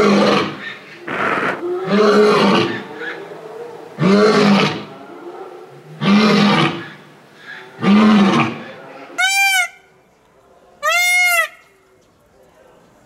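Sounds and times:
lion roaring: 0.0 - 3.2.

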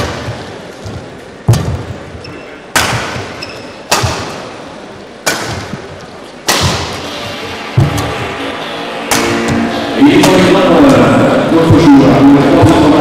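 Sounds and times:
rackets striking shuttlecock: 1.5 - 4.6, 5.2 - 8.3, 9.0 - 10.5.

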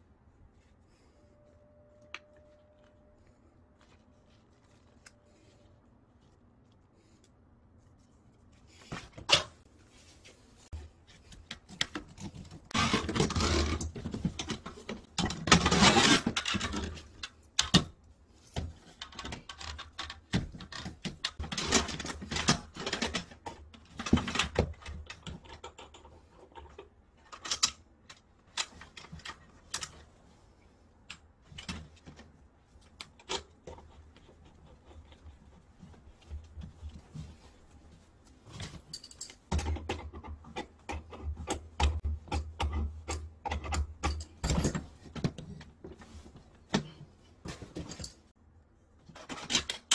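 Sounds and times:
scraping and crinkling: 0.4 - 17.4, 31.4 - 48.3
metal hoses clicking and rustling: 31.0 - 48.3.

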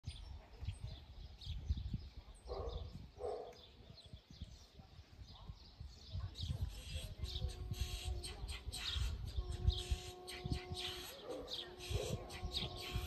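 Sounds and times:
small birds chirping: 0.0 - 13.0
wind rumbling on microphone: 0.0 - 13.0
dog barking: 2.5 - 3.6, 11.2 - 12.2.

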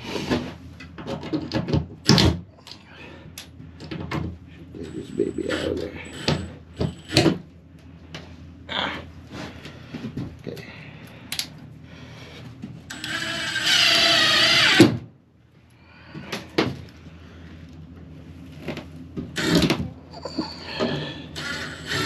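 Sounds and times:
power drill whine: 5.0 - 7.3, 12.9 - 15.0, 19.4 - 22.0.

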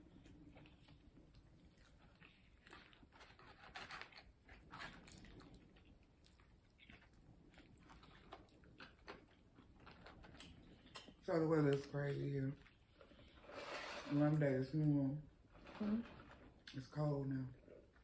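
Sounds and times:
chewing and biting food: 0.0 - 11.2
crunchy crackles: 0.0 - 18.0.

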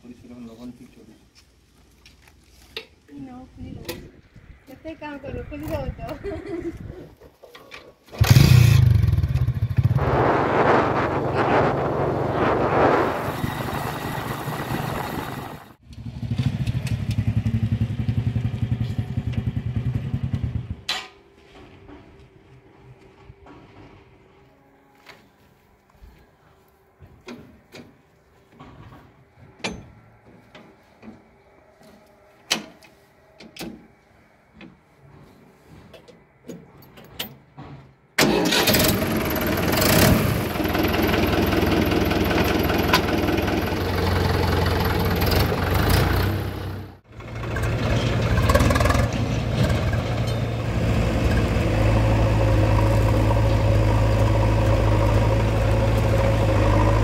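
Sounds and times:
diesel tractor engine running: 8.2 - 20.9, 38.2 - 57.0.

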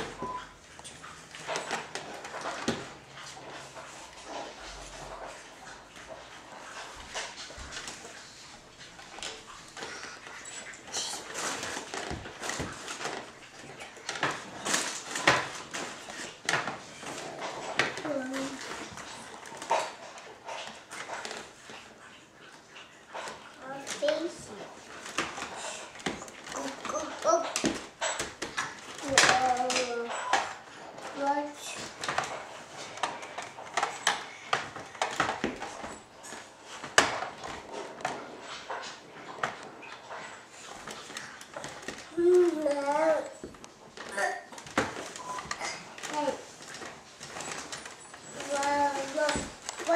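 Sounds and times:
baby swing frame knocking and rattling: 1.3 - 4.6, 25.0 - 49.9
rustles: 22.5 - 49.9.

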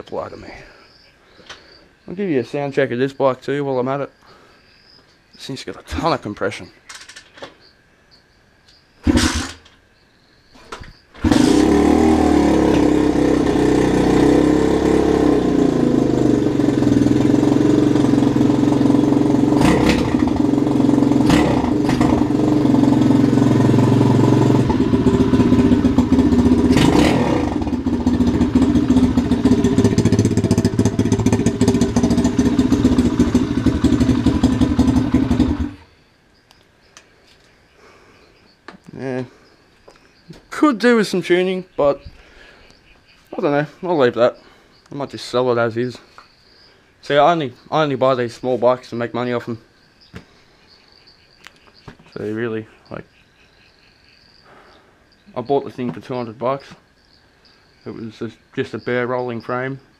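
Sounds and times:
dirt bike engine idling: 11.2 - 35.9
engine throttle blips: 11.2 - 35.9.

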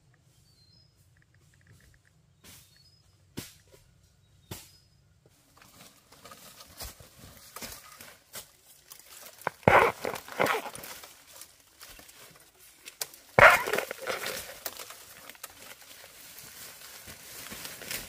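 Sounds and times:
small clicks and rustles: 1.0 - 2.9, 5.5 - 18.0.

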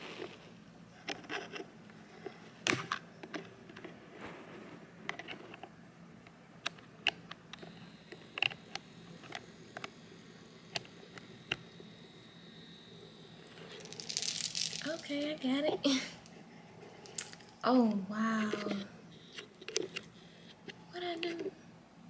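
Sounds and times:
faint steady high tone: 7.6 - 16.8
handling clicks and rustles: 13.5 - 15.2.

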